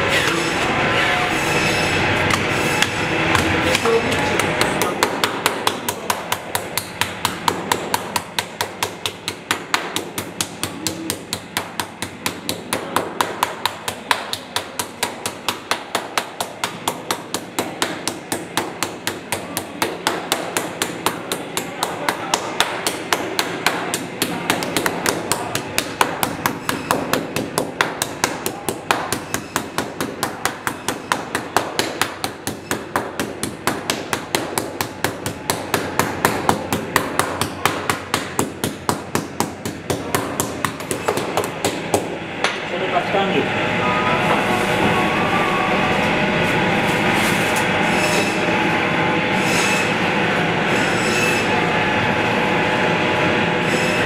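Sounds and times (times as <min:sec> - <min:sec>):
meat pounder striking meat: 0:02.3 - 0:42.6.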